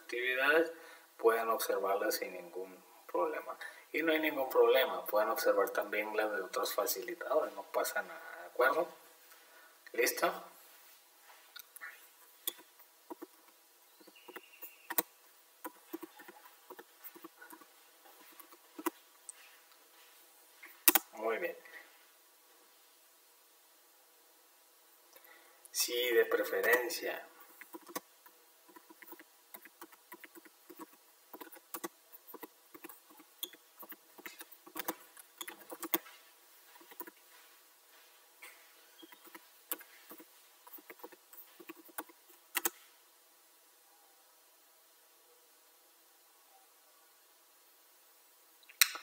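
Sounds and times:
typing on computer keyboard: 27.6s - 28.0s, 28.7s - 36.0s, 39.1s - 42.7s.

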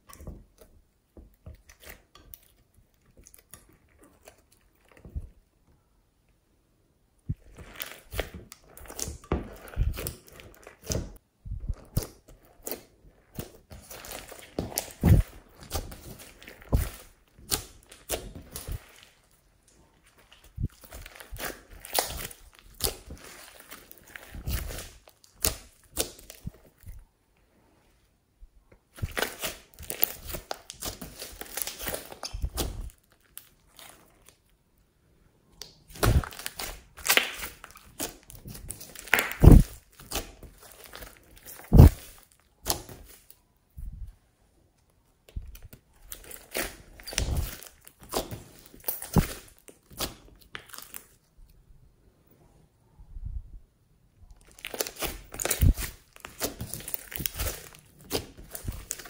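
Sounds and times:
slime crackling and popping: 7.3s - 26.9s, 28.9s - 34.5s, 35.6s - 43.4s, 45.3s - 51.2s, 54.3s - 59.0s
slime pressed down thuds: 35.9s - 40.4s, 41.6s - 43.1s.

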